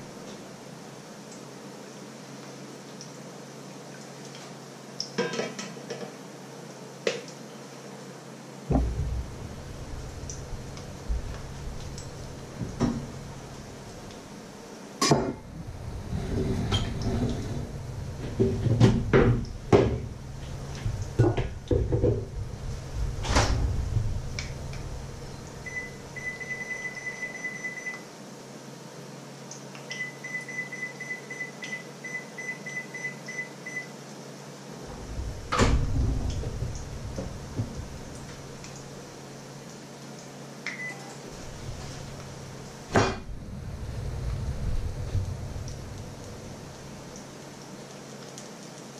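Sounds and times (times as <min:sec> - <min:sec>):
kitchen knocks and clunks: 0:08.7 - 0:13.4, 0:15.0 - 0:15.5, 0:16.3 - 0:22.4, 0:42.9 - 0:43.3
electronic appliance beeping: 0:25.6 - 0:28.0, 0:29.9 - 0:33.9, 0:40.7 - 0:41.1.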